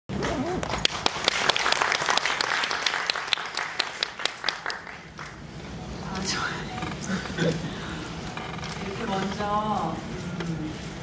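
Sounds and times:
audience applauding: 0:00.4 - 0:05.5.

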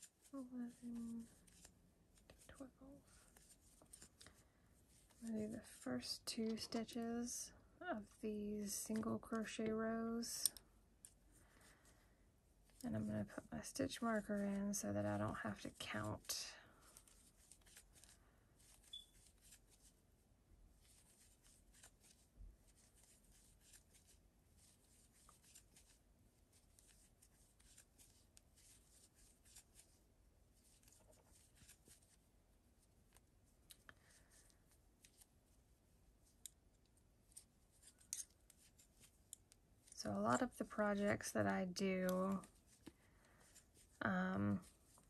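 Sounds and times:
yarn rustling: 0:20.8 - 0:36.5, 0:37.2 - 0:45.0.

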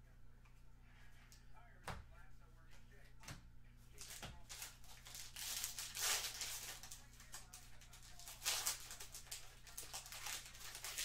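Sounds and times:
foil wrapper tearing and crinkling: 0:04.0 - 0:11.0.

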